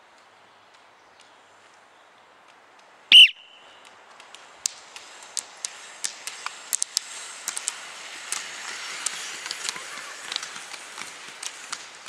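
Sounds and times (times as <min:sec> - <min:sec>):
ski poles clicking on asphalt: 0:00.0 - 0:12.0
high-pitched whistle-like cry: 0:03.1 - 0:03.7
hiss of rolling wheels: 0:03.9 - 0:12.0.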